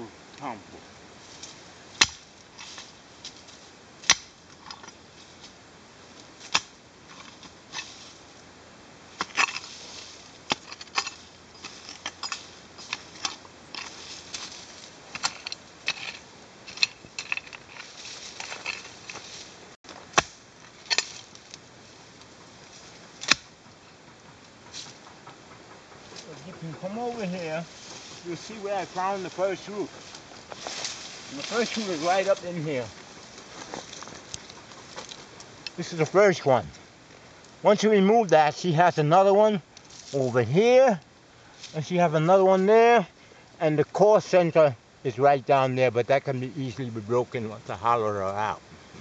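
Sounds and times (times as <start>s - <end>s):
dirt and dry leaves crunching: 0.0s - 49.0s
pickaxe striking dry soil: 2.0s - 3.4s, 4.0s - 4.7s, 6.4s - 8.0s, 9.2s - 21.6s, 23.1s - 23.7s.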